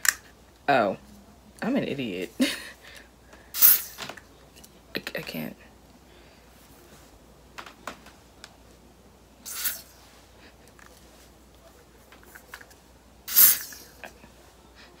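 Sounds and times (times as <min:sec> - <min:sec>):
spray bottle hissing puffs: 0:03.6 - 0:04.0, 0:09.5 - 0:09.9.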